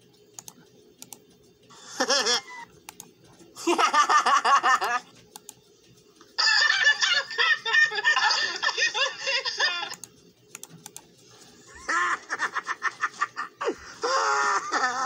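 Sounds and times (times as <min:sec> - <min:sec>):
rapid stuttering laughter-like sound: 0:01.8 - 0:02.7, 0:03.6 - 0:05.1, 0:06.4 - 0:10.0, 0:11.6 - 0:15.0
cartoon characters laughing: 0:01.9 - 0:02.7, 0:03.6 - 0:05.1, 0:06.4 - 0:10.0, 0:11.7 - 0:15.0
sharp clicks: 0:02.8 - 0:03.2, 0:05.3 - 0:05.6, 0:09.9 - 0:11.1.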